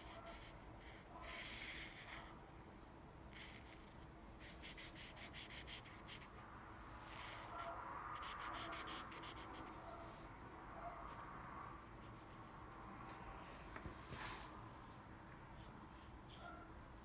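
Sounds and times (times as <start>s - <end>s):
marker scratching on paper: 0.0s - 2.4s, 3.3s - 6.4s, 7.0s - 10.2s, 12.0s - 13.2s.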